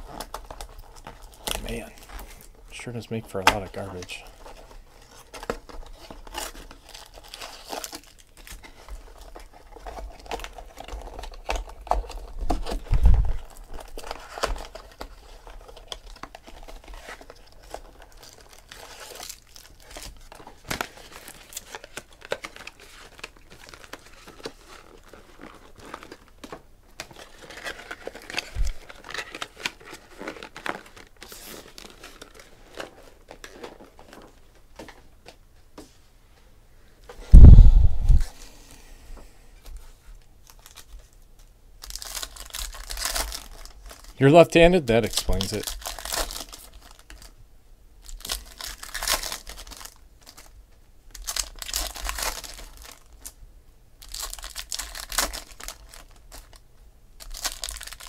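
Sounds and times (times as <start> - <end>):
plastic wrap crinkling and tearing: 0.0 - 35.4, 39.7 - 47.4, 48.0 - 53.4, 54.0 - 58.0
low thump: 37.2 - 38.3.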